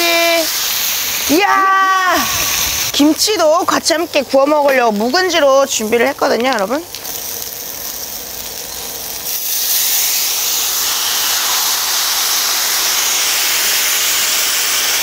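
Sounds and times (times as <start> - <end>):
meat sizzling on a griddle: 0.0 - 15.0.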